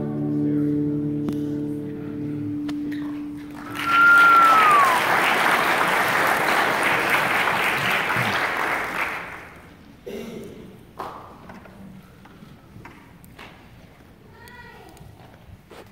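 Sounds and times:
audience applause: 3.4 - 9.8.

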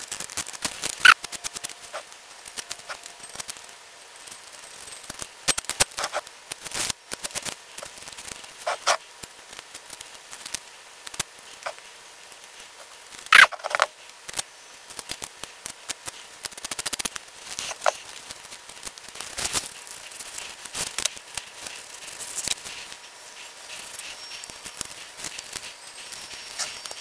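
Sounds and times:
masking tape crackling and ripping: 0.0 - 27.0
quick run of ticks: 15.0 - 27.0.

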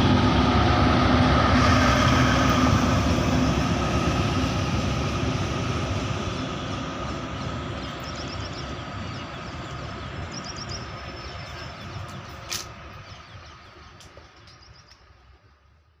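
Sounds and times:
train rumbling away: 0.0 - 16.0
small birds chirping: 6.4 - 15.0.

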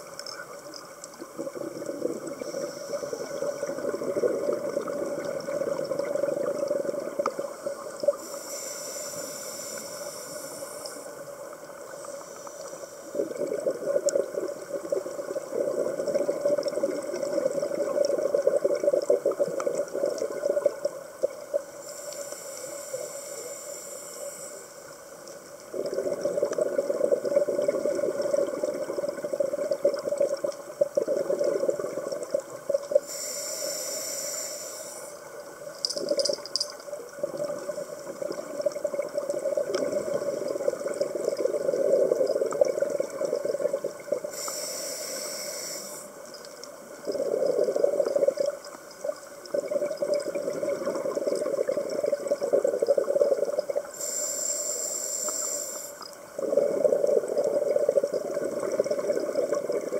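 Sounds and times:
hissing inhales: 2.4 - 3.6, 8.2 - 11.2, 21.8 - 25.0, 33.0 - 35.2, 44.3 - 46.2, 53.9 - 56.1.

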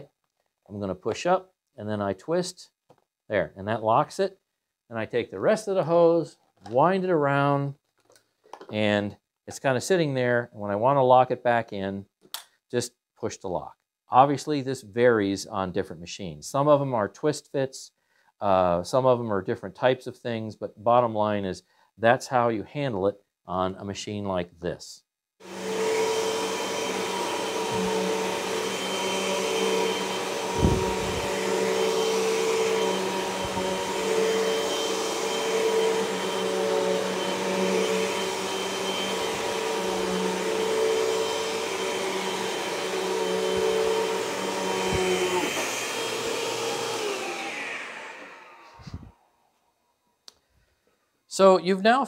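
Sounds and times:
vacuum cleaner running: 25.4 - 49.3.

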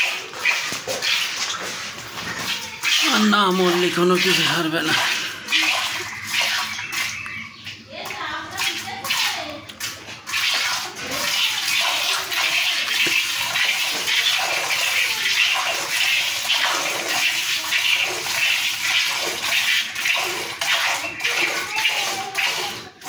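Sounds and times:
milk squirting into container: 0.0 - 23.0.

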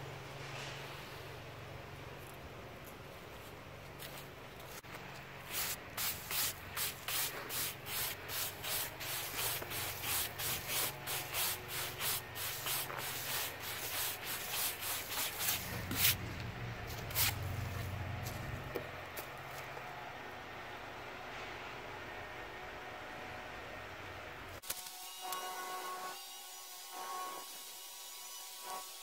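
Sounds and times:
brush sweeping sawdust off wood: 5.4 - 16.2.

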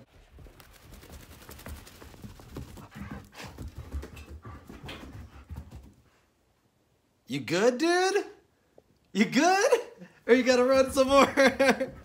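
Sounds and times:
dog paws thudding on carpet: 0.1 - 6.2.

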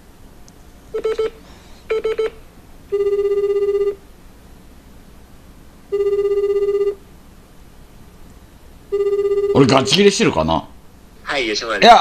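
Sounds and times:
telephone ringback tone: 1.0 - 4.0, 5.9 - 7.0, 8.9 - 10.0.

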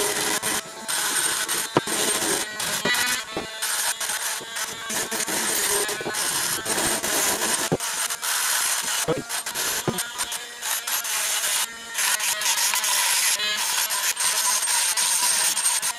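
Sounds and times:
knocks of grinding bit: 0.0 - 10.4
rotary tool grinding metal: 0.0 - 15.9.

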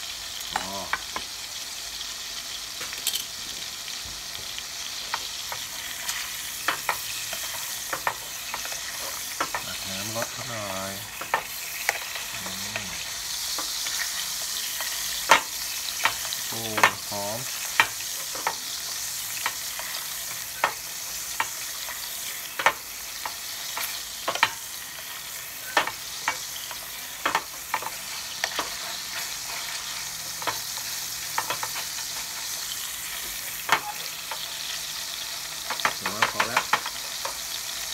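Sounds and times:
steak sizzling in butter: 0.0 - 37.9.

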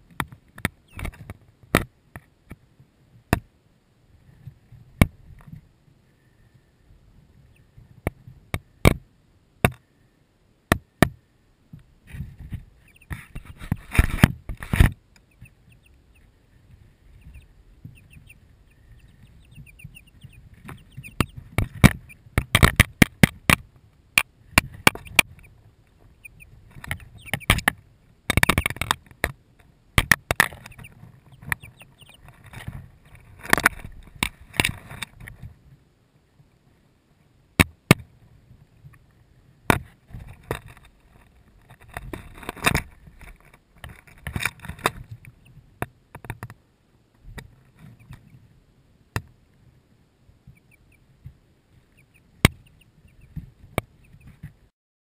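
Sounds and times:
chicks tapping on microphone: 0.0 - 2.6, 11.8 - 35.5, 39.7 - 46.6, 47.2 - 48.4, 50.4 - 54.6
faint chick peeps: 0.7 - 1.1, 12.7 - 14.0, 15.1 - 22.5, 24.6 - 27.7, 28.3 - 29.0, 30.4 - 32.3, 47.7 - 48.5, 50.4 - 54.6.

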